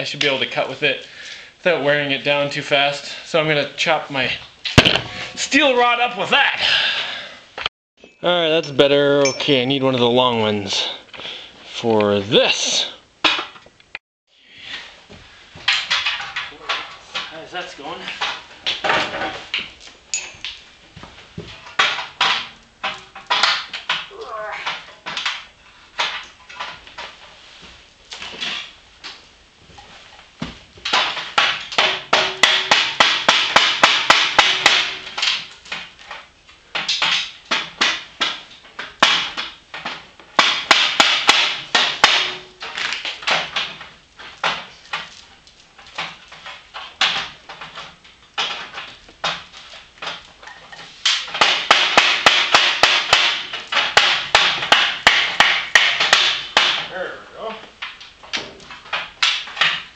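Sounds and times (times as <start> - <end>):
hammer striking steel: 4.8 - 5.5, 31.7 - 35.3, 40.4 - 42.6
faint metallic ring: 8.0 - 9.6, 20.1 - 20.4.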